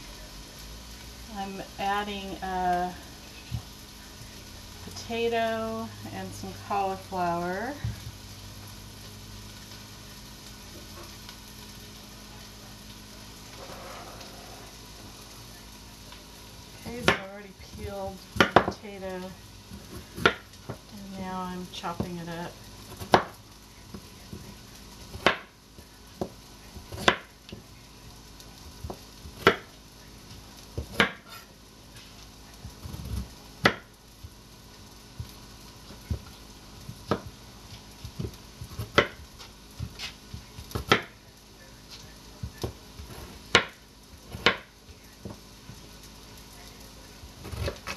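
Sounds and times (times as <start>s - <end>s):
vegetables sizzling in a pot: 0.0s - 47.9s
knife chopping on cutting board: 23.0s - 23.3s, 26.9s - 27.2s, 28.9s - 29.6s, 30.8s - 31.3s, 38.1s - 39.2s, 40.7s - 41.1s, 42.6s - 44.6s.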